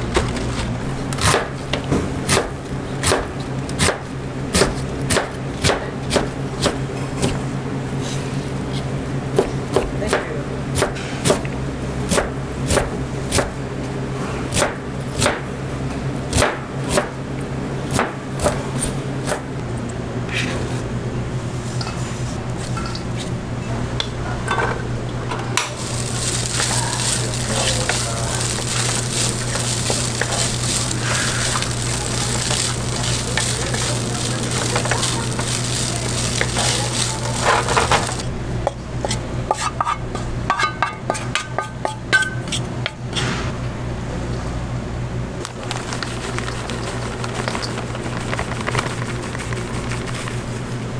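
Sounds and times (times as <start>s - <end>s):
steady low hum: 0.0s - 50.9s
meat sizzling in a pan: 25.8s - 38.3s
scraping and mixing in steel bowl: 25.8s - 38.3s
wooden spatula stirring: 25.8s - 38.3s.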